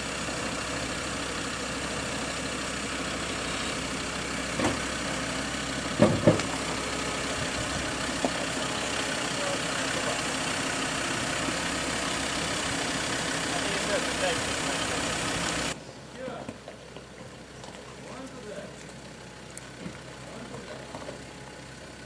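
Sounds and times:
vehicle engine idling: 0.0 - 22.0
sharp knocks: 6.0 - 6.5.

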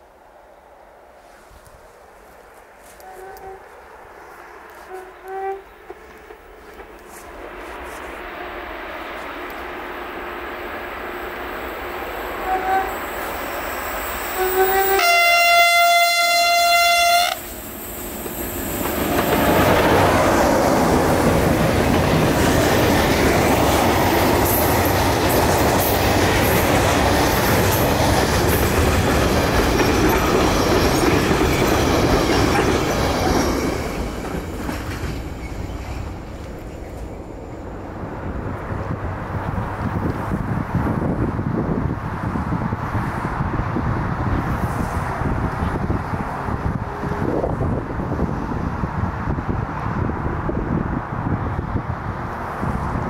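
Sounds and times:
locomotive horn blast: 2.9 - 3.8, 4.8 - 6.1, 12.4 - 13.2, 14.3 - 17.5
freight train wagons rumbling: 3.6 - 53.0.

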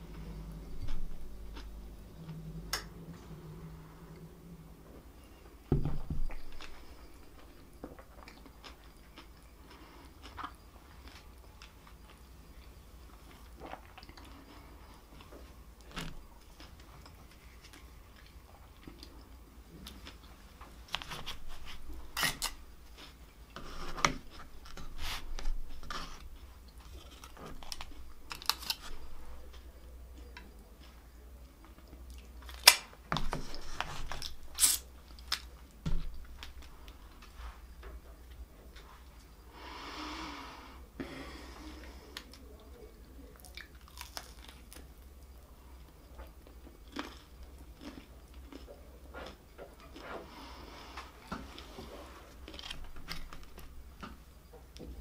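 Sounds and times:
foil lids peeled with crinkles: 26.8 - 29.0
close chewing with mouth clicks: 46.1 - 50.2.

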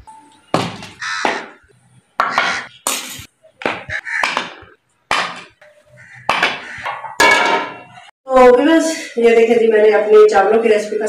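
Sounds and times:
steel dishes clattering on concrete: 6.9 - 7.9.

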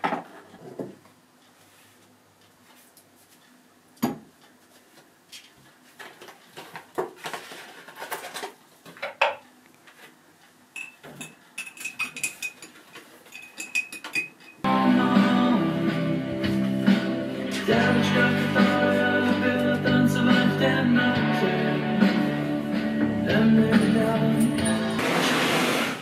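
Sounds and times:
dishes and cutlery clattering: 10.8 - 14.6
teaspoon clinking against mug: 10.8 - 14.6.

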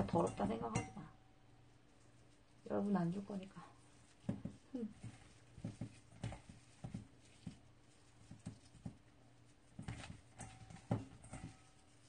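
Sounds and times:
fingers tapping in steel bowl: 0.0 - 1.2, 9.7 - 12.0.

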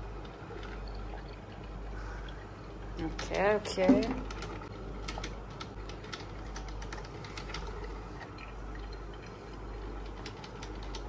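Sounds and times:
hot water dripping into carafe: 0.0 - 11.0.

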